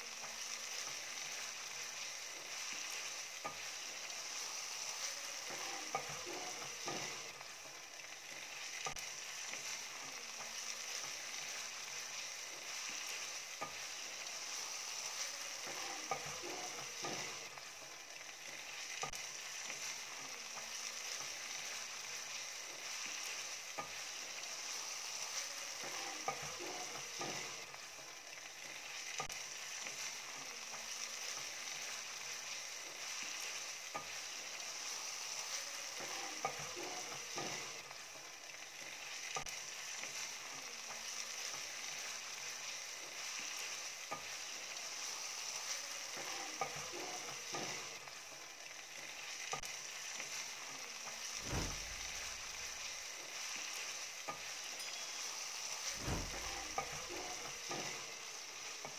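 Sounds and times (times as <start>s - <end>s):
meat sizzling in a frying pan: 0.0s - 58.9s
spatula scraping a pan: 5.4s - 7.4s, 15.6s - 17.6s, 25.8s - 27.7s, 36.0s - 37.8s, 54.3s - 58.2s
dull thump: 51.4s - 52.3s, 56.0s - 56.6s.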